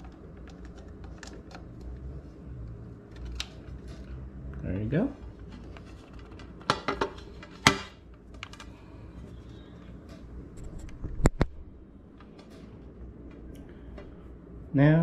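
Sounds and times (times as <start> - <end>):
cable handling noise: 0.0 - 2.0, 3.0 - 4.2, 5.2 - 8.8.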